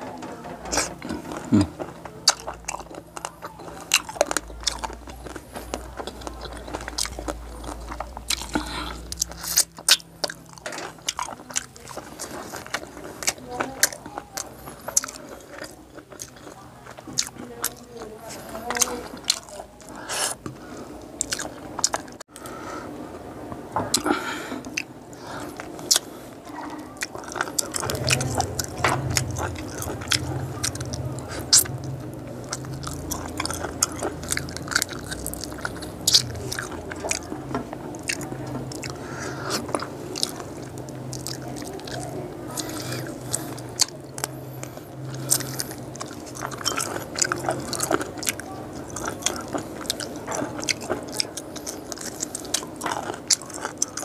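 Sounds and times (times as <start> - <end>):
chewing and crunching small bones: 0.0 - 22.6, 23.8 - 54.0
wet mouth sounds: 0.8 - 22.2, 23.9 - 54.0
low hum: 27.2 - 49.6.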